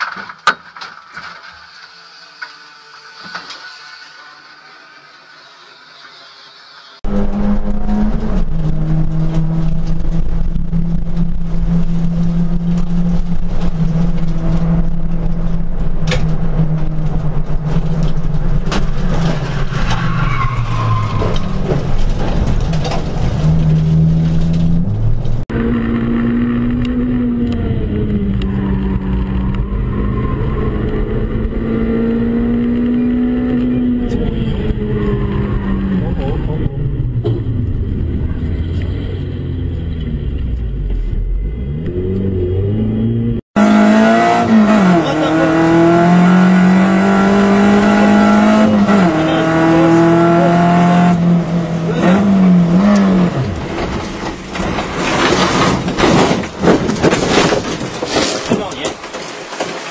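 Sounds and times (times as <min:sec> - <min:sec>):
race car engine from inside: 0:23.4 - 0:53.9.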